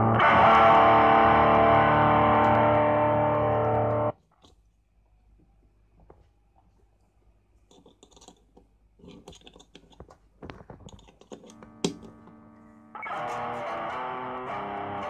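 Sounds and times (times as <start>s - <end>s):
distorted electric guitar chord: 0.0s - 4.1s, 11.6s - 15.0s
jack plug clicks and crackles: 9.1s - 12.4s.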